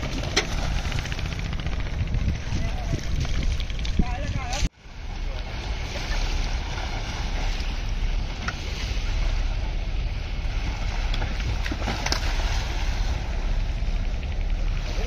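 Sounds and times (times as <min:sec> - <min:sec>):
wind noise on microphone: 0:00.0 - 0:04.8.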